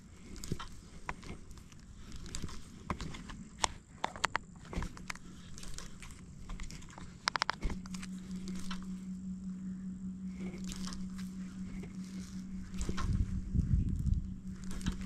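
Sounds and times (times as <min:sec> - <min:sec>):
fishing reel whirring: 0:04.6 - 0:15.0
fishing reel clicks: 0:10.4 - 0:13.2, 0:14.0 - 0:15.0.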